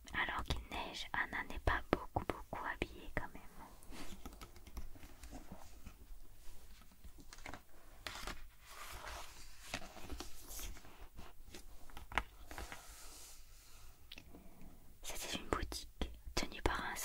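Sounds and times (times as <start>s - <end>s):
book page turning: 6.6s - 13.4s.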